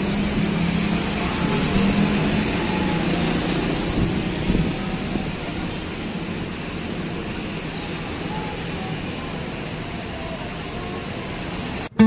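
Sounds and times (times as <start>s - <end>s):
strong wind through trees: 0.0s - 12.0s.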